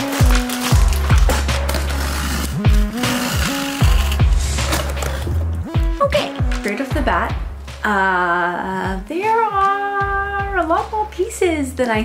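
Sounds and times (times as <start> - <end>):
music with sliding bass and beat: 0.1 - 8.0.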